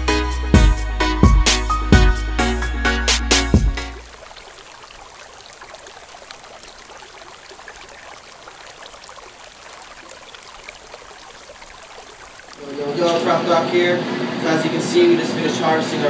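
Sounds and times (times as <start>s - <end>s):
water running: 2.6s - 15.9s
water dripping: 3.6s - 13.8s.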